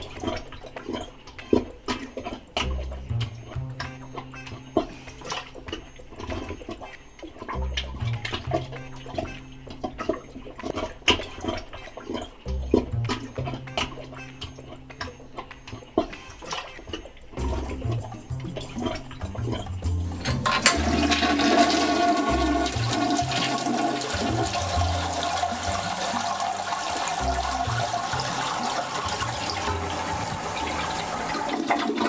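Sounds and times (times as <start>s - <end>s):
background music bassline: 2.6s - 32.0s
toilet flushing: 20.1s - 32.0s.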